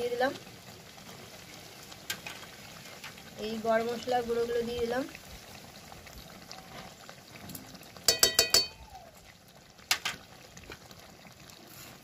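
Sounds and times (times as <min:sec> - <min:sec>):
faint simmering in wok: 0:00.0 - 0:12.0
metal spoon clinking on metal: 0:08.1 - 0:08.7.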